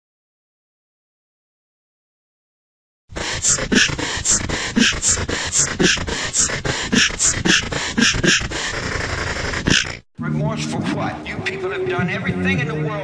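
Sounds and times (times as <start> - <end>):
synthetic voice beatboxing: 3.1 - 10.1.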